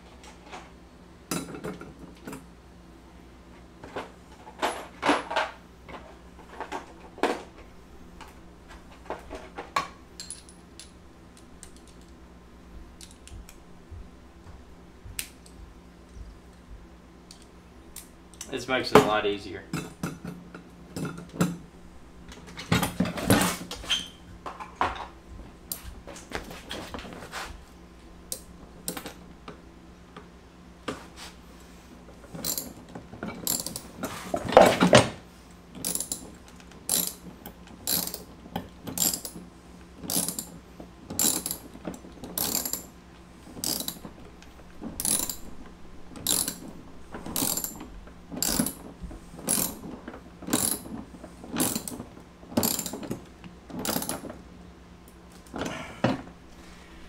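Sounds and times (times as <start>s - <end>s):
ratchet wrench clicking: 32.4s - 32.7s, 33.4s - 33.8s, 35.8s - 36.2s, 36.9s - 37.2s, 37.8s - 38.2s, 38.9s - 39.4s, 40.1s - 40.6s, 41.2s - 41.7s, 42.3s - 42.9s, 43.6s - 44.0s, 45.0s - 45.4s, 46.2s - 46.6s, 47.4s - 47.8s, 48.4s - 48.8s, 49.4s - 49.8s, 50.5s - 50.8s, 51.6s - 51.9s, 52.6s - 53.0s, 53.8s - 54.2s.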